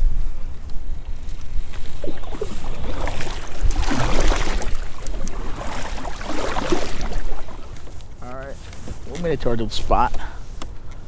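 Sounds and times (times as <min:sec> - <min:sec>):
wind rumble on microphone: 0:00.0 - 0:09.2
kayak paddle splashing in water: 0:01.4 - 0:08.1.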